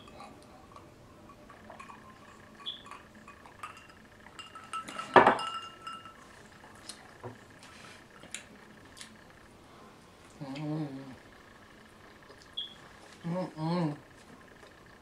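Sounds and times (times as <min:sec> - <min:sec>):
glass clinking on wooden table: 0:01.7 - 0:06.2.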